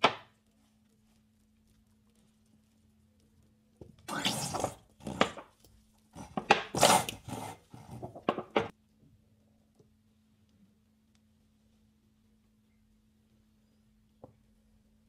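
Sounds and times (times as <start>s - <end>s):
wet sponge squelching: 4.1s - 8.2s.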